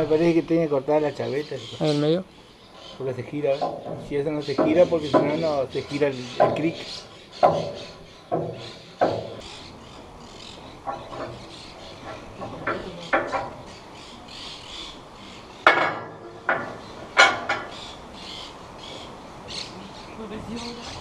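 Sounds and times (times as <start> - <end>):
tools knocking on metal: 3.6 - 9.5, 15.6 - 17.8.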